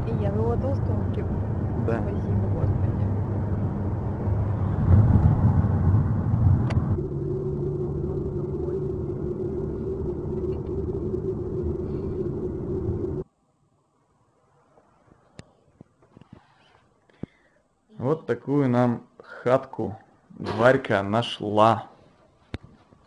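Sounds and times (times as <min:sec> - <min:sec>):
van road and engine rumble: 0:00.0 - 0:13.2.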